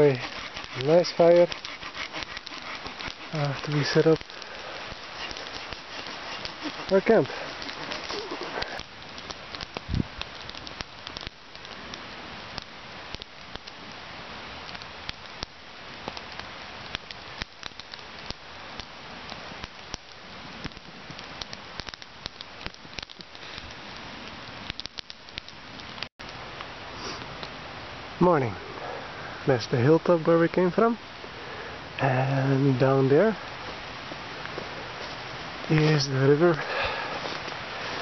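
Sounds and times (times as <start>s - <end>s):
campfire crackling: 0.0s - 38.0s.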